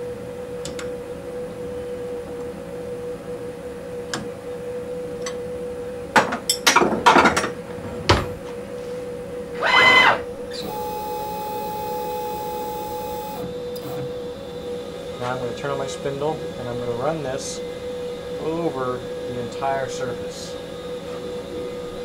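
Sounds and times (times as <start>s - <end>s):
constant machine hum: 0.0s - 22.0s
machine squeal and whine: 9.5s - 15.4s.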